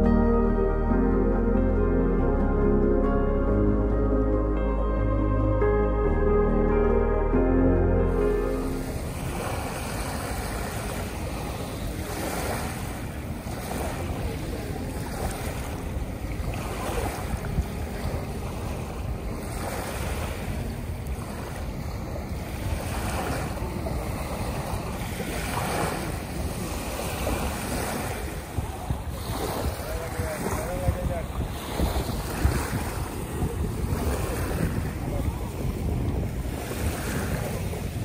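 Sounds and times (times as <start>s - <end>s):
wind rumbling on microphone: 0.0s - 38.0s
waves lapping on sandy shore: 7.8s - 38.0s.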